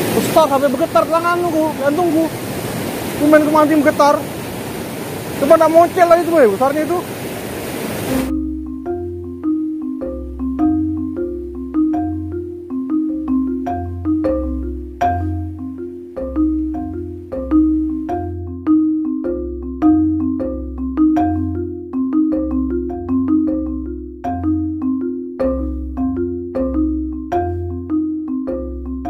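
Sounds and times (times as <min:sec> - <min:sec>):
marimba-like mallet percussion: 0:00.0 - 0:02.4, 0:03.2 - 0:04.2, 0:05.4 - 0:07.0, 0:07.9 - 0:29.0
low bass line: 0:08.1 - 0:29.0.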